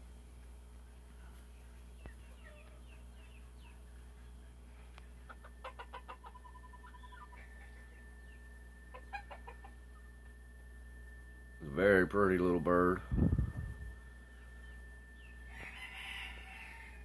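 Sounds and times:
low steady hum: 0.0 - 17.0
chickens clucking faintly: 0.8 - 10.2.

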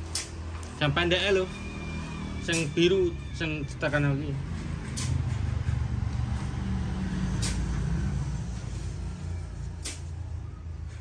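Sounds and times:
engine rumble: 0.0 - 11.0
sharp clicks: 4.8 - 6.3.

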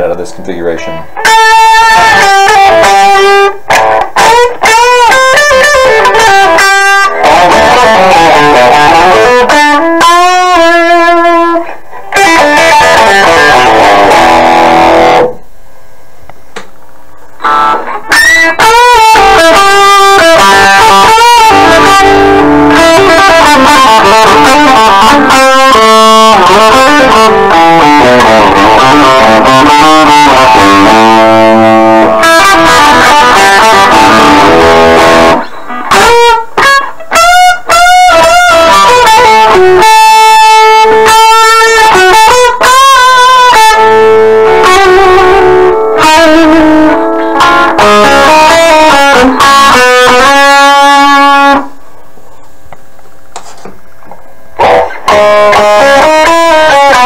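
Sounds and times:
overdriven electric guitar lead: 0.8 - 15.4, 17.2 - 52.9, 53.9 - 57.0.

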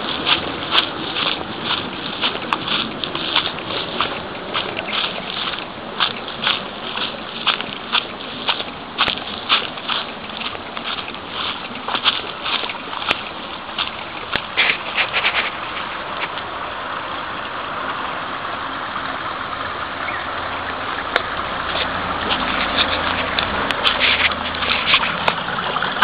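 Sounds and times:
footsteps on gravel: 0.0 - 16.5, 21.1 - 26.0
water rushing along channel: 0.0 - 26.0.

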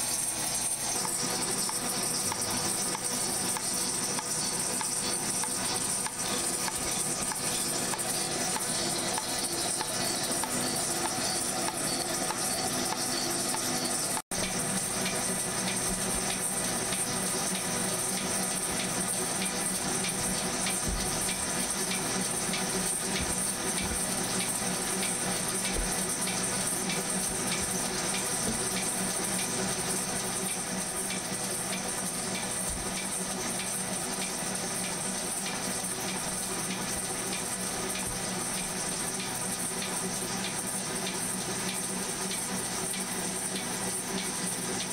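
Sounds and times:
machine tool cutting steel: 0.0 - 15.4.

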